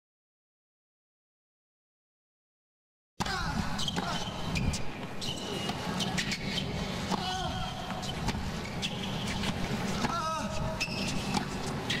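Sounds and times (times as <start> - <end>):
shoes squeaking on court: 3.2 - 12.0.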